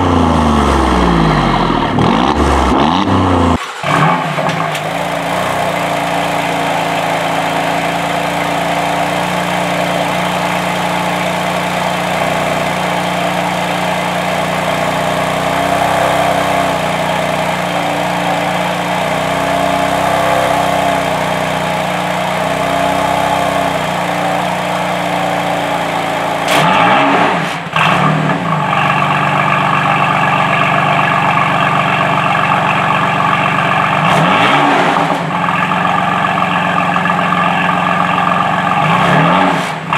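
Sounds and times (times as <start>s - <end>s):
car engine idling: 0.0s - 39.9s
engine revving blip: 26.4s - 28.4s.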